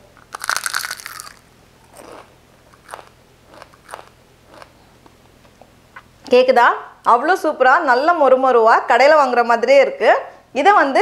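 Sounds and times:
crunching bite of fried pastry: 0:00.2 - 0:04.7
chewing crunches: 0:00.2 - 0:04.8.

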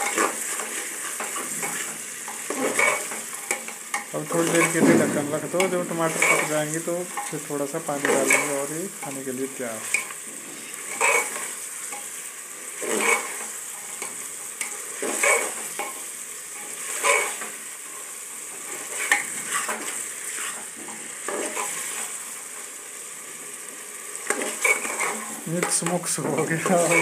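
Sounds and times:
frying sizzle: 0:00.0 - 0:27.0
ladle scraping pot: 0:24.3 - 0:27.0.

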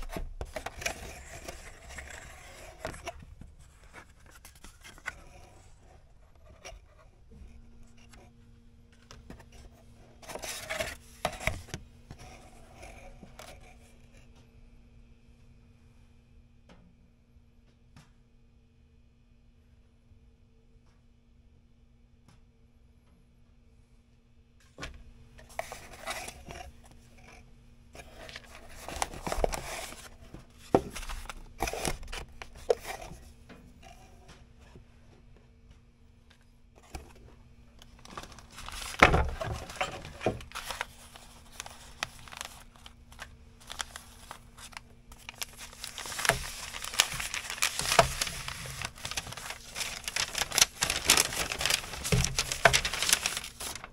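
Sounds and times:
card scraping out of box: 0:00.0 - 0:03.2, 0:38.1 - 0:53.9
paper rustling in cardboard box: 0:00.0 - 0:05.7, 0:09.3 - 0:13.7, 0:25.4 - 0:27.3, 0:28.0 - 0:34.1, 0:37.8 - 0:53.9.

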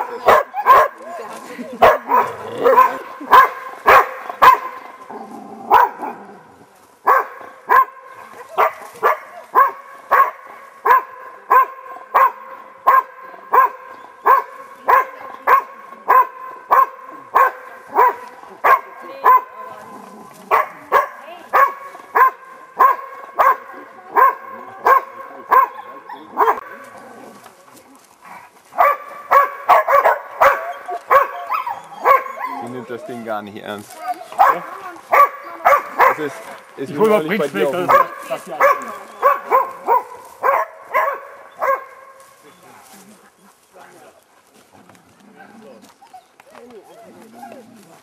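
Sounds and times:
dog barking rhythmically: 0:00.0 - 0:01.0, 0:01.8 - 0:04.8, 0:05.7 - 0:06.0, 0:07.1 - 0:08.0, 0:08.6 - 0:19.6, 0:20.5 - 0:25.8, 0:26.4 - 0:26.6, 0:28.8 - 0:32.5, 0:34.4 - 0:36.3, 0:37.8 - 0:42.0.

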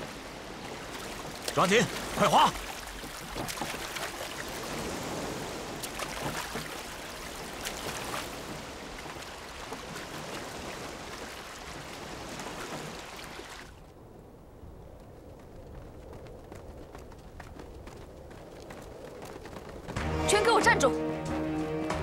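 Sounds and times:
oar splashes: 0:00.0 - 0:13.9
sea water rushing around a boat: 0:00.0 - 0:14.0.

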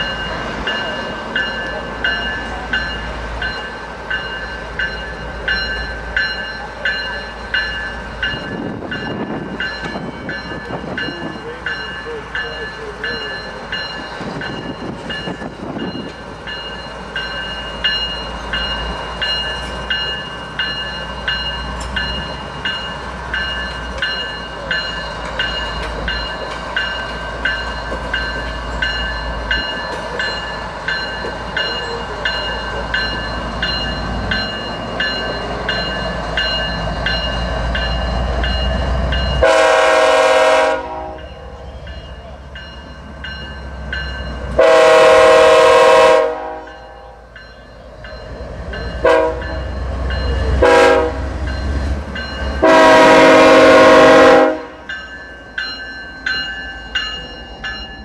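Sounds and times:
locomotive bell ringing: 0:00.0 - 0:58.0
locomotive engine rumble: 0:00.0 - 0:58.0
train horn blast: 0:39.4 - 0:41.3, 0:44.6 - 0:46.8, 0:49.0 - 0:49.6, 0:50.6 - 0:51.4, 0:52.6 - 0:54.8.

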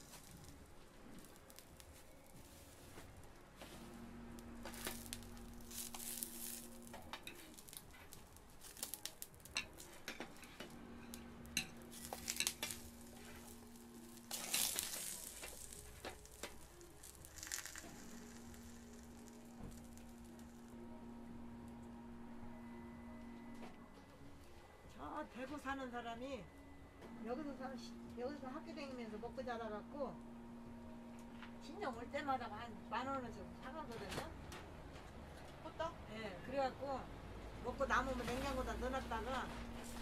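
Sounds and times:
pancakes sizzling in oil: 0:00.0 - 0:03.0, 0:04.4 - 0:20.7.

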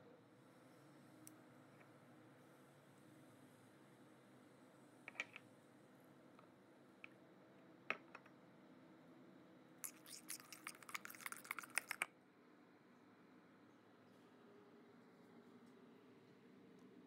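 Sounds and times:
utensil scraping steel bowl: 0:09.8 - 0:12.1.

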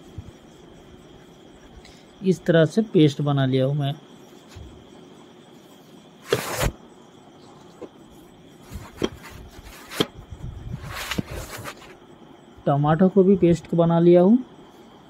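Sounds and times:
rustling: 0:06.2 - 0:06.8, 0:10.8 - 0:12.0.

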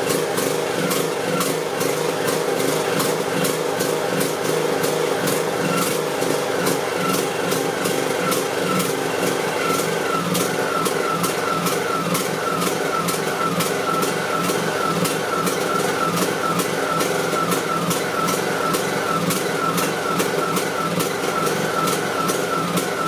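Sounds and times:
riding mower engine idling and surging: 0:00.0 - 0:23.0.

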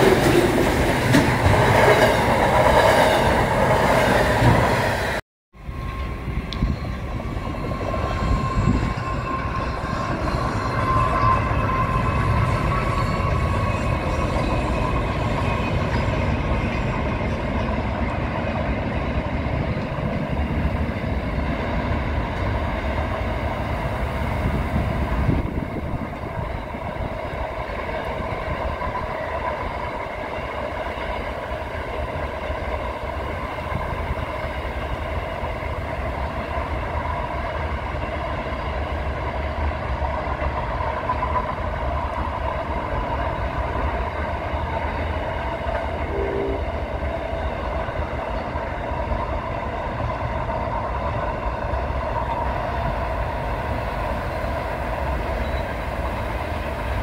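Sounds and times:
train wagons rumbling on rails: 0:00.0 - 0:57.0
thin high tone: 0:46.1 - 0:46.9.

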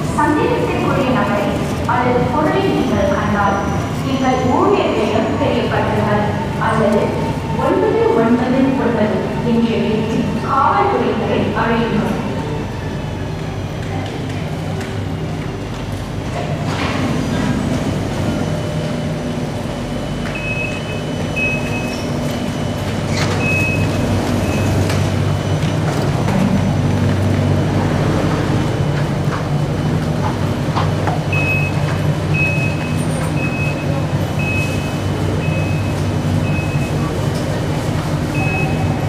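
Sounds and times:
train equipment humming: 0:00.0 - 0:39.0
high-pitched door warning beeps: 0:20.0 - 0:25.7, 0:31.3 - 0:37.2, 0:38.3 - 0:39.0.

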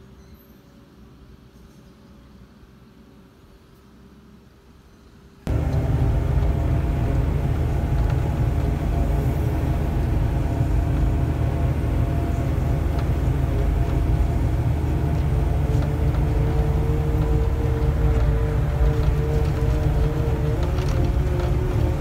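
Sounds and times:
excavator diesel engine drone: 0:05.5 - 0:22.0.

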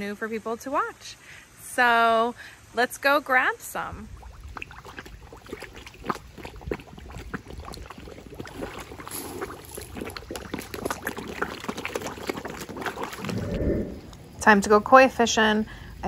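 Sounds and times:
fish splashing at water surface: 0:04.2 - 0:14.1.

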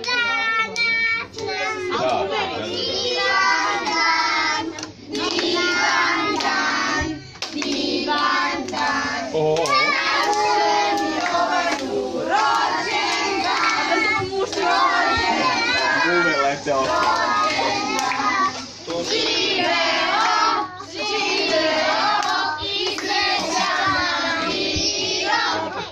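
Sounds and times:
group singing: 0:01.4 - 0:25.9
hands clapping: 0:04.7 - 0:25.0.

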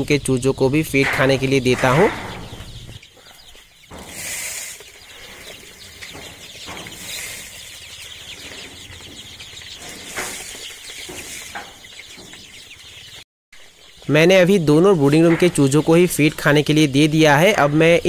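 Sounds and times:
chicks peeping: 0:00.0 - 0:18.0
dry feed poured into trays: 0:04.1 - 0:05.6, 0:06.9 - 0:07.8.

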